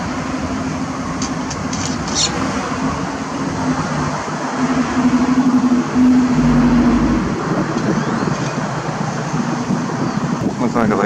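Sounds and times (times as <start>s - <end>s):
road traffic: 0.0s - 10.5s
deep engine rumble: 2.6s - 10.6s.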